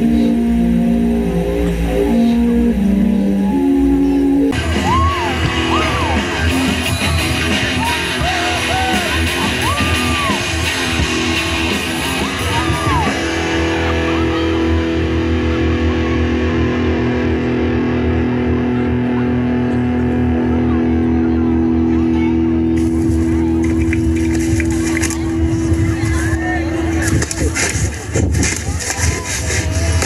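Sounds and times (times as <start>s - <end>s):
rock music with guitar: 4.4s - 28.1s.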